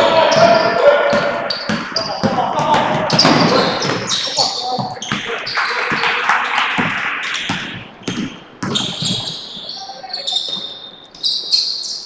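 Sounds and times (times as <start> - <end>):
sneakers squeaking on floor: 0.0 - 12.0
basketball bouncing on wood floor: 0.3 - 6.1, 6.7 - 9.7.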